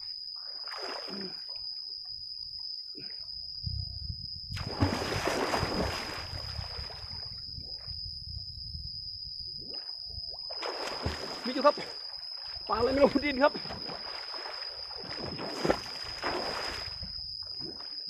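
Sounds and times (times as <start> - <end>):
water splashing from swimming: 4.6 - 7.0, 10.6 - 11.6, 13.7 - 17.1.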